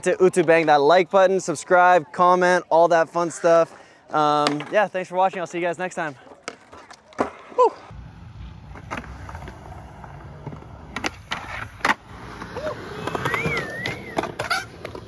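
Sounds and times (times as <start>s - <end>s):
skateboards rolling on concrete: 0.1s - 15.0s
skateboard wooden clacks: 4.4s - 4.8s.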